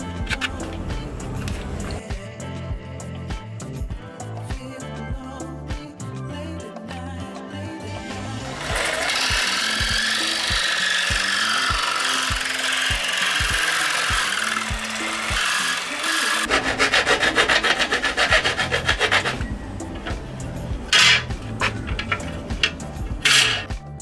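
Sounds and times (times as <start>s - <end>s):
jigsaw cutting metal sheet: 8.3s - 23.7s.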